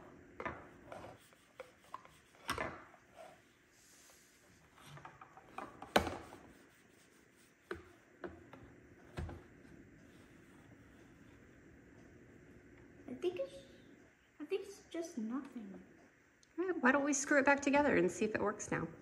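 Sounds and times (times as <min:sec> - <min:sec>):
cloth rubbing on plastic: 0:06.4 - 0:07.7.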